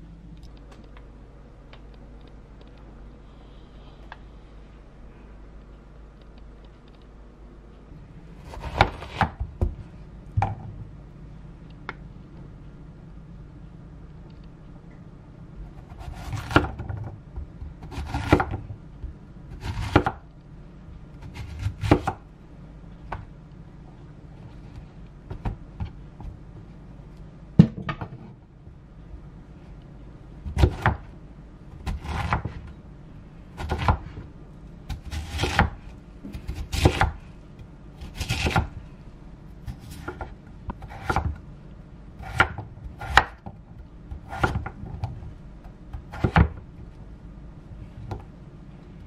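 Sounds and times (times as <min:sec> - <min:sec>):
knife cutting vegetables on board: 0:08.5 - 0:09.4, 0:31.8 - 0:32.6, 0:36.3 - 0:37.2, 0:39.7 - 0:41.4, 0:44.2 - 0:44.7.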